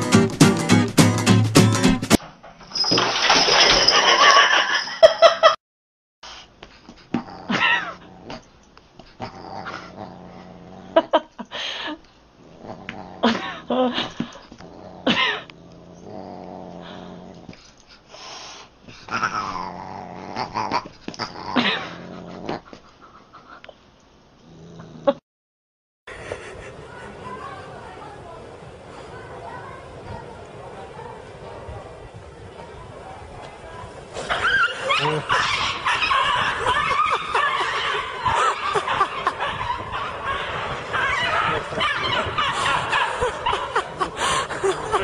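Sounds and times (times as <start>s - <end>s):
cat growling: 7.1s - 8.5s, 9.1s - 11.1s, 12.4s - 17.6s, 19.0s - 22.8s
people snickering: 26.1s - 27.4s, 34.2s - 45.0s.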